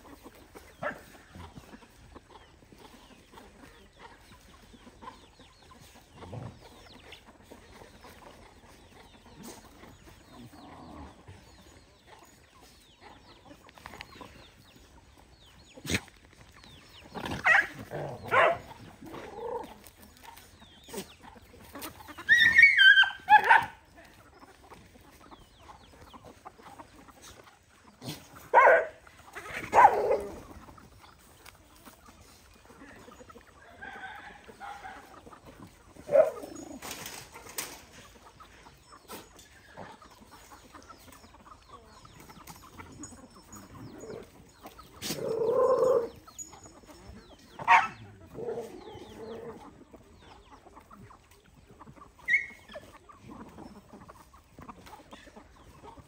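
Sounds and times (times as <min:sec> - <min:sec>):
chickens clucking: 0:00.0 - 0:56.0.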